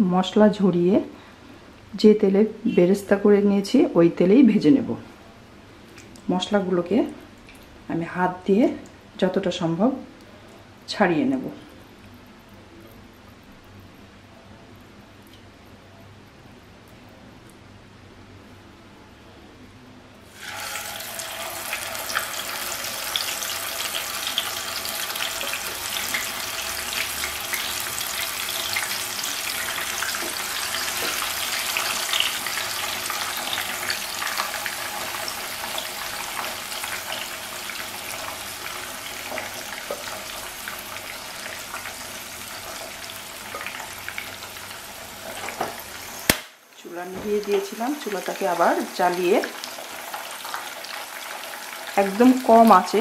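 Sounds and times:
chicken sizzling in hot oil: 20.3 - 46.5, 47.3 - 53.0.

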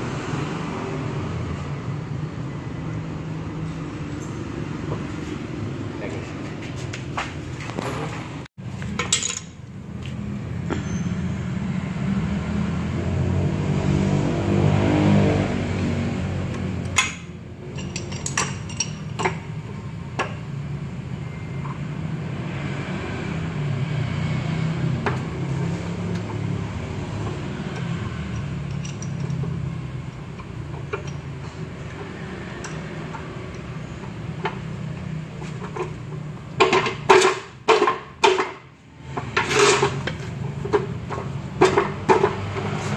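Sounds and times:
low workshop hum: 0.7 - 42.9
wrench clinking on metal: 9.0 - 9.6, 16.9 - 19.5, 27.7 - 34.2.

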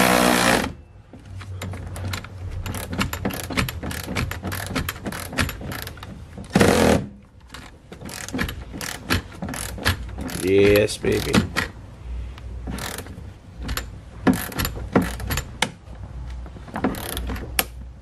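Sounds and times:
ratchet clicking: 2.0 - 6.1, 8.0 - 11.7, 12.7 - 15.7, 16.8 - 17.8.

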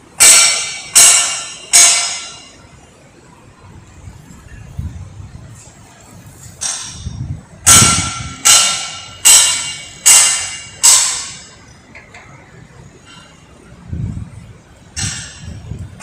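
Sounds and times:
hammer striking steel: 0.1 - 2.6, 6.6 - 11.7, 15.0 - 15.5.

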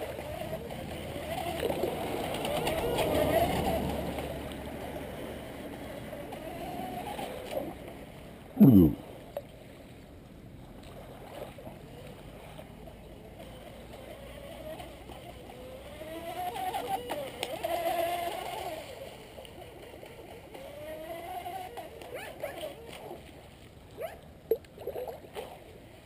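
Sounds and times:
electric motor and propeller whining: 0.0 - 9.3, 11.0 - 24.2.

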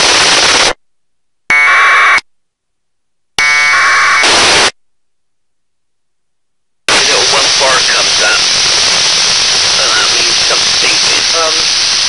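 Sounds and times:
buzzy radio noise bursts: 3.6 - 4.8, 6.9 - 12.0.

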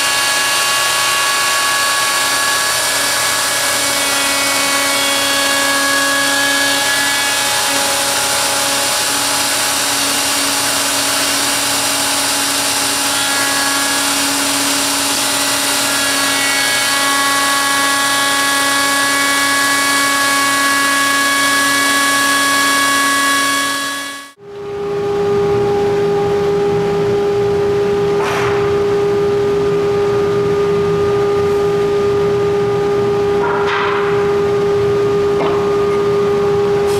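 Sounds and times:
router whining while cutting wood: 0.0 - 24.4.

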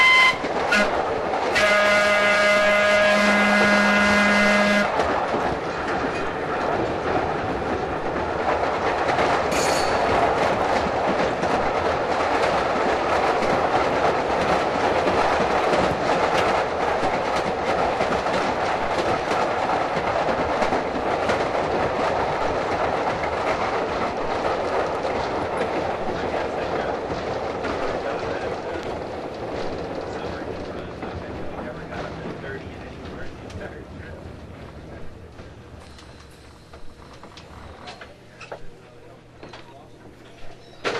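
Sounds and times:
train whistle: 0.0 - 4.9
train wheels and motors rumbling: 0.0 - 40.9
wheels clicking over rail joints: 0.0 - 40.9.

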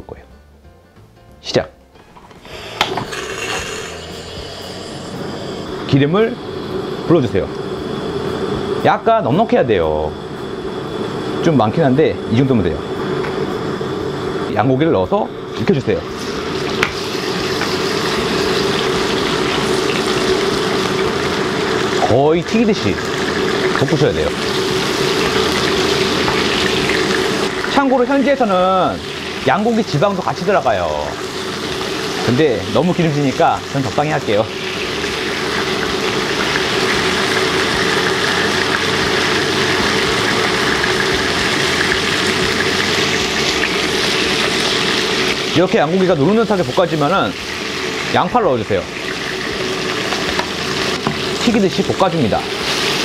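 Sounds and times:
low hum: 1.9 - 22.0
meat sizzling in hot oil: 2.4 - 53.0.

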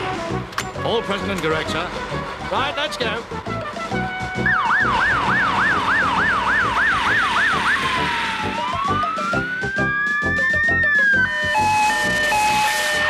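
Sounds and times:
fire engine siren: 3.5 - 13.0.

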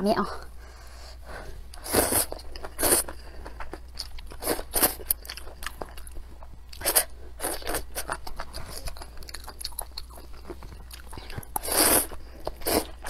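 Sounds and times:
wet chewing and mouth smacks: 1.7 - 13.0
noodle slurps: 11.6 - 13.0.

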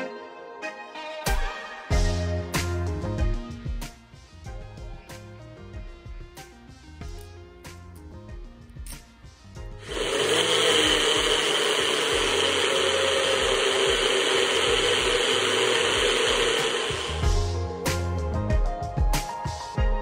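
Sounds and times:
blender motor running: 9.8 - 17.5.

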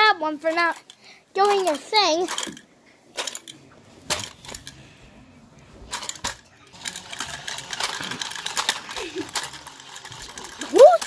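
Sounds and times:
coin bank mechanism clicking: 5.9 - 11.0.

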